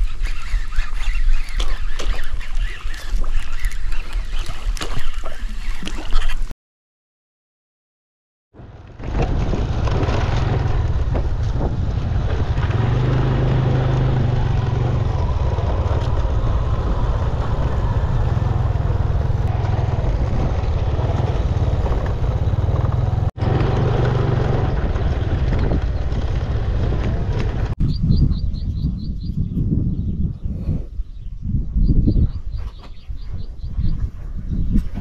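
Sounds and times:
road traffic rumble: 8.6 - 27.8.

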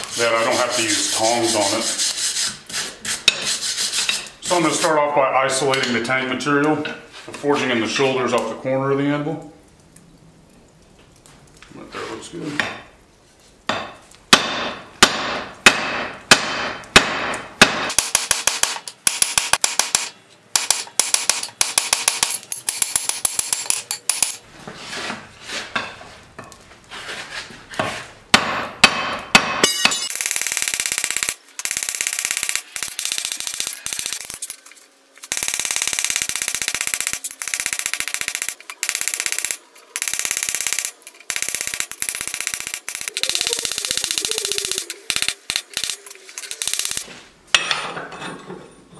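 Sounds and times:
hammer striking hot steel on anvil: 13.7 - 24.4, 28.3 - 30.2.

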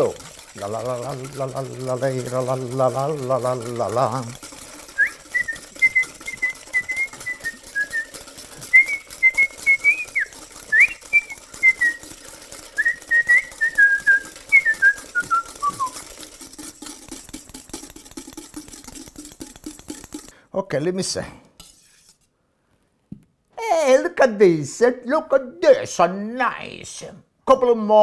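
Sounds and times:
egg whites whisked in a bowl: 0.0 - 22.4
man whistling a tune: 5.0 - 8.1, 8.7 - 12.0, 12.8 - 16.0.

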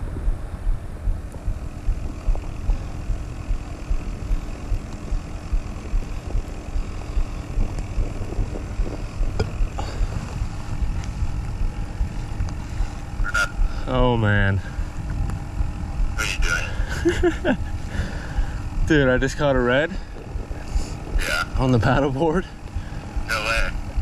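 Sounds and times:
wind buffeting microphone: 0.0 - 16.2, 17.5 - 24.0
faint ticks: 3.5 - 12.6.

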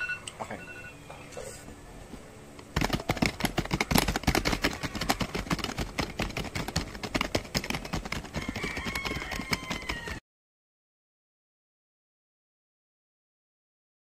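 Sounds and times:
faint high tone sliding downward: 0.0 - 1.5
rapid keyboard typing: 2.8 - 10.2.

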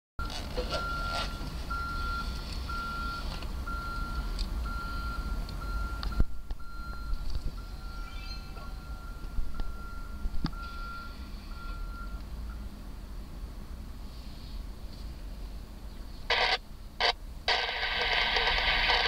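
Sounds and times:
truck backup alarm beeping: 0.2 - 12.7, 16.3 - 19.0
low steady rumble: 0.2 - 19.0.

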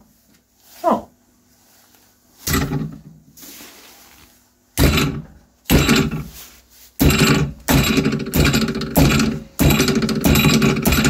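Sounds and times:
hammer striking plastic in vise: 2.5 - 3.0, 4.8 - 6.3, 7.0 - 11.0.

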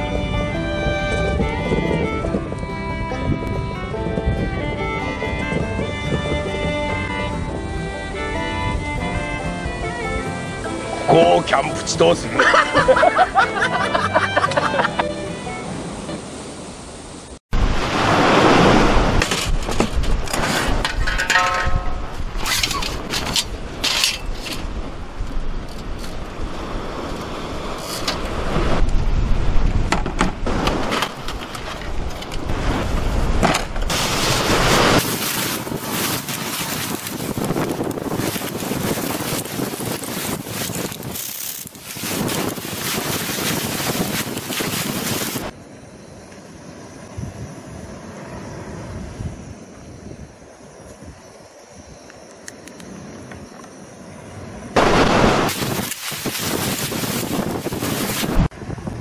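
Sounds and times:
wind on microphone: 0.0 - 11.0, 17.6 - 45.6, 47.0 - 52.1, 54.8 - 59.0
sea surf: 9.6 - 19.8, 24.4 - 45.6, 54.4 - 58.5.

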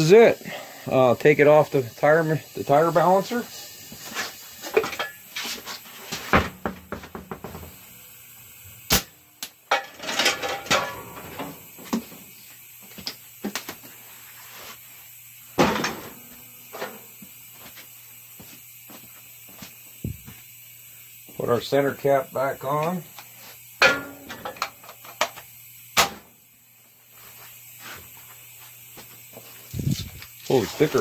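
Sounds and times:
wheel knocking on concrete floor: 6.2 - 7.8.

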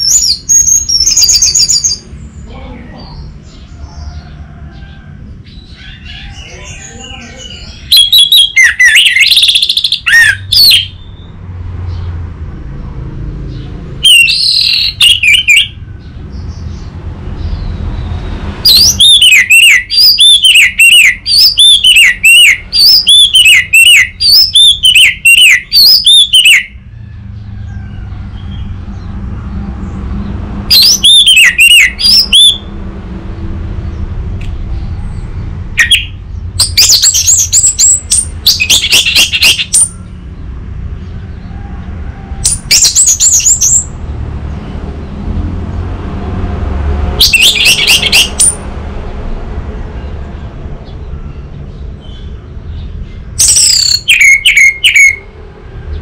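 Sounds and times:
thrush singing whistles: 0.0 - 2.0, 6.9 - 11.4, 14.0 - 15.8, 18.0 - 26.8, 30.7 - 32.7, 35.8 - 40.1, 47.2 - 48.6, 53.4 - 55.3.

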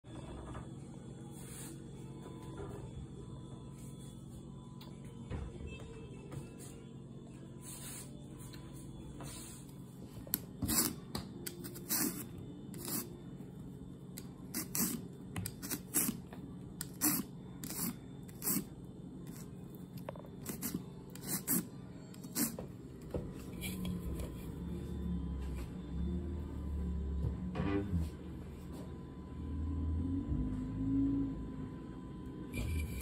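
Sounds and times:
vegetable peeler scraping: 14.5 - 16.2, 16.8 - 18.7.

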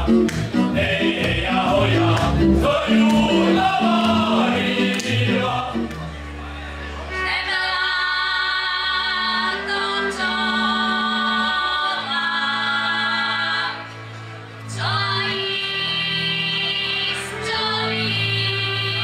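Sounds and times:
women singing in harmony: 7.1 - 13.9, 14.7 - 19.0.

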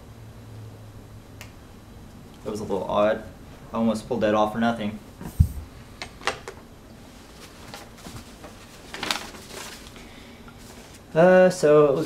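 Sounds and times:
dull thump on carpet: 5.2 - 5.7
cardboard box and papers rustling: 7.3 - 11.1.

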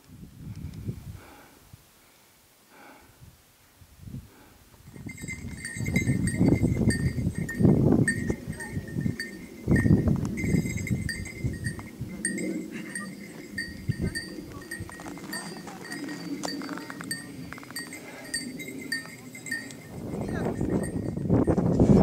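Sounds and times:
small bell jingling: 4.9 - 21.7.

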